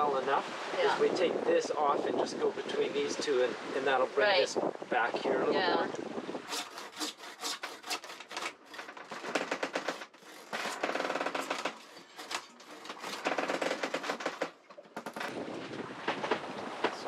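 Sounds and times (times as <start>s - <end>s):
winch ratcheting: 6.5s - 15.4s.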